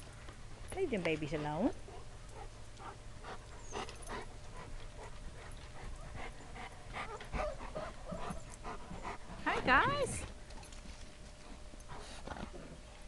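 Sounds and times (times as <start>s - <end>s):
dog panting: 1.9s - 10.2s, 11.4s - 12.7s.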